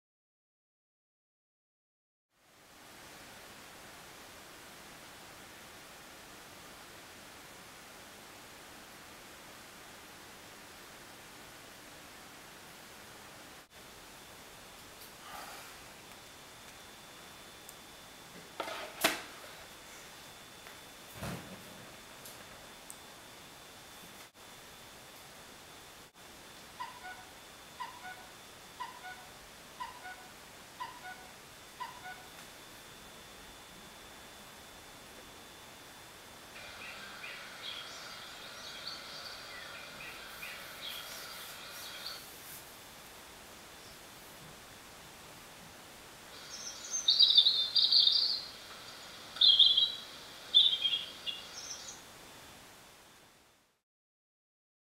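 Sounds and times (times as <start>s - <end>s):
faint hiss: 2.4s - 26.8s, 32.4s - 53.8s
birds chirping from phone app: 26.8s - 32.3s, 36.6s - 42.3s, 46.4s - 48.5s, 49.4s - 52.0s.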